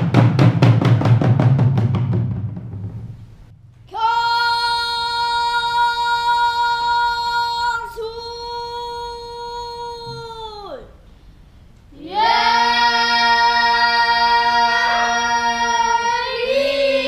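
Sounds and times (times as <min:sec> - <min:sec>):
percussion drumming: 0:00.0 - 0:03.5
high voice singing long note: 0:03.9 - 0:11.0, 0:12.0 - 0:17.0.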